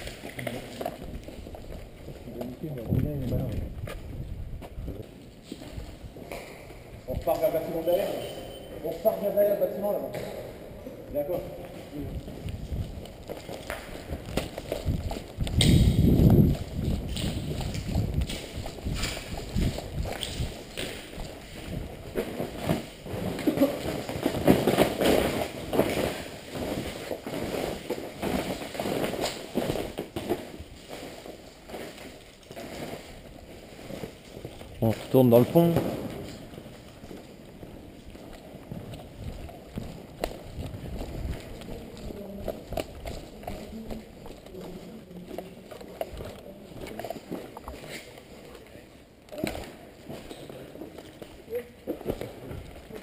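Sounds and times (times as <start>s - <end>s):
footsteps crunching over debris: 11.6s - 53.0s.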